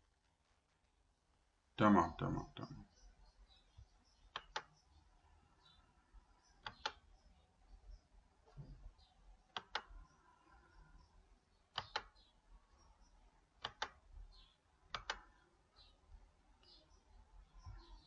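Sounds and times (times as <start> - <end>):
faint room hum: 0.0 - 18.0
computer mouse clicks: 4.2 - 4.8, 6.5 - 7.1, 9.5 - 10.2, 11.7 - 12.3, 13.6 - 15.3.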